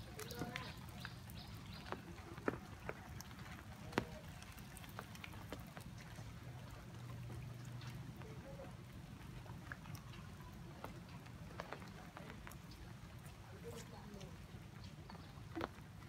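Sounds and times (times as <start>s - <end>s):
low engine-like hum: 5.7s - 11.5s.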